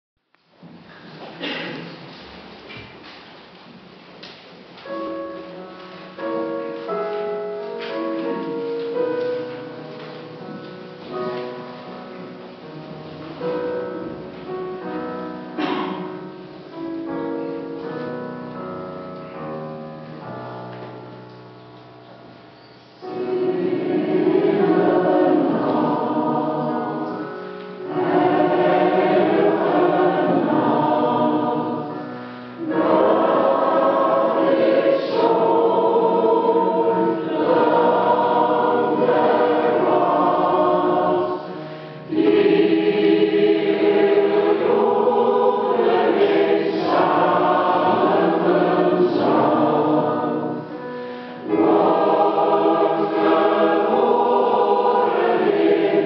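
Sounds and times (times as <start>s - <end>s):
mixed choir singing: 13.4s - 16.4s, 23.0s - 56.0s.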